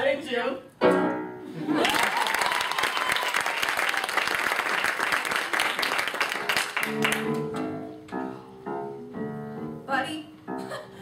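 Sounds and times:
upright piano chords: 0:00.8 - 0:01.6, 0:05.8 - 0:11.0
audience applauding: 0:01.7 - 0:07.6.

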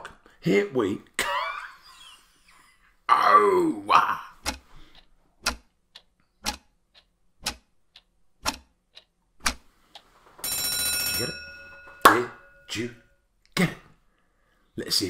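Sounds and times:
clock tick-tock: 0:04.0 - 0:13.6
alarm bell ringing: 0:10.4 - 0:13.2.

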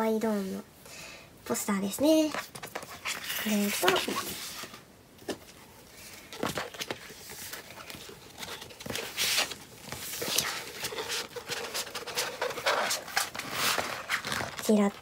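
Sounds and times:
stiff paper crackling: 0:02.3 - 0:04.8, 0:06.1 - 0:15.0.

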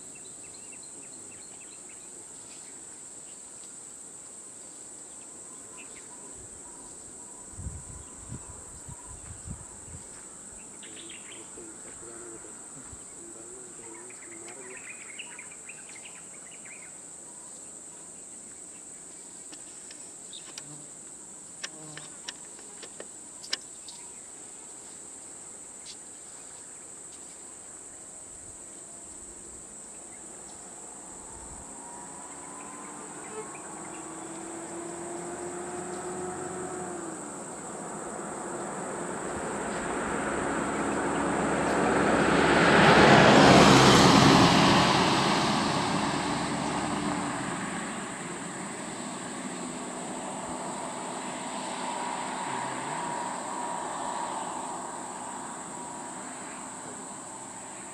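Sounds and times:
insects droning: 0:00.0 - 0:57.9
approaching vehicle engine: 0:30.1 - 0:57.9.

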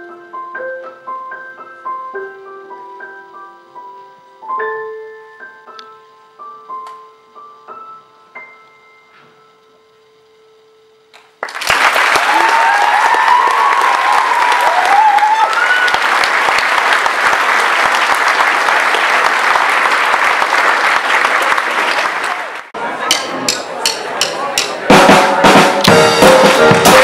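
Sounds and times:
audience applause: 0:11.2 - 0:23.1, 0:25.5 - 0:27.0
audience cheering: 0:11.4 - 0:27.0.

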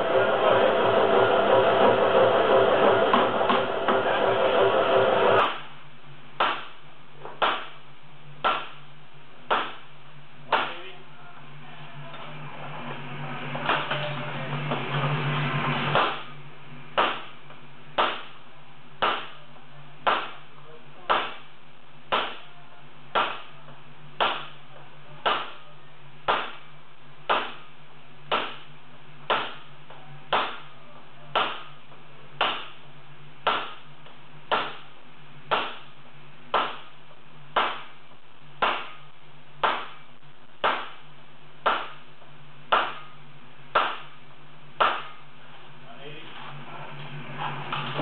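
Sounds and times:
steady low hum: 0:00.0 - 0:48.0
hammer striking anvil: 0:15.9 - 0:16.3.

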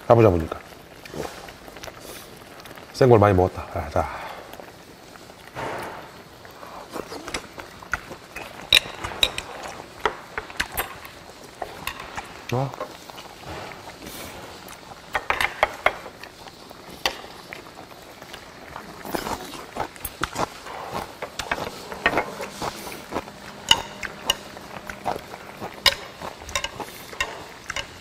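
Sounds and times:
chewing: 0:00.6 - 0:02.9, 0:06.4 - 0:15.2, 0:15.9 - 0:28.0
metal chopsticks clinking on bowls: 0:08.4 - 0:09.6, 0:21.2 - 0:28.0.

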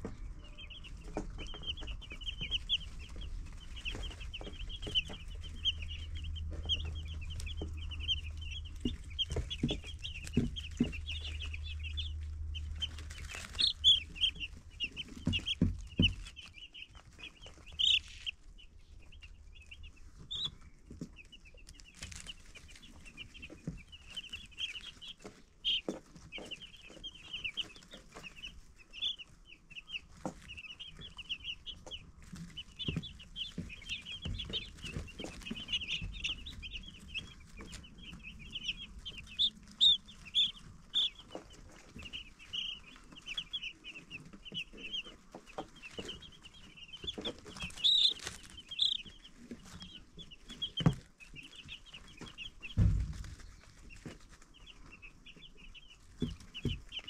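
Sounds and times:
baby chicks peeping: 0:00.0 - 0:57.0
soft low thump: 0:52.7 - 0:53.5.

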